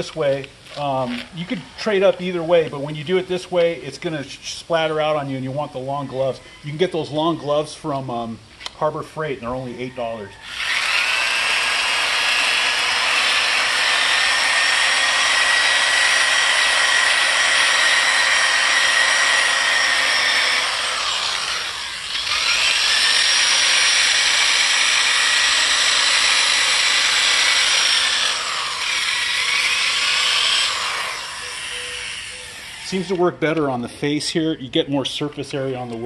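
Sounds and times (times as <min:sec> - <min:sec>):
electric drill motor whine: 0:10.4 - 0:33.2
abrasive wheel grinding tile: 0:10.5 - 0:33.4.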